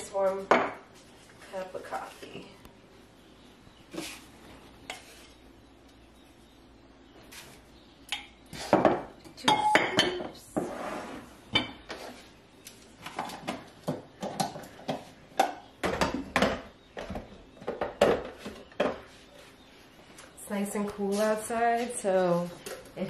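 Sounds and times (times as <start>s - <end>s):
kitchen utensils clinking: 8.1s - 10.7s.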